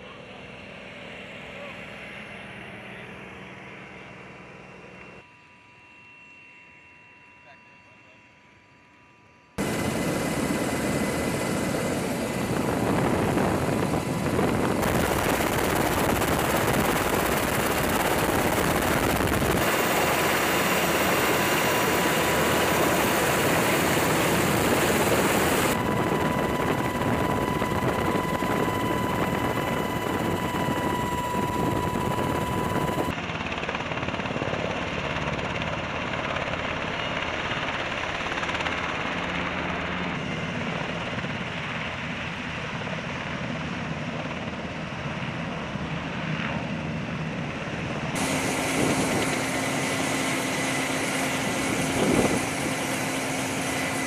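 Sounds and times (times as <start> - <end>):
thin steady whine: 0.0 - 33.2, 45.7 - 54.0
helicopter rotor and turbine: 0.0 - 54.0.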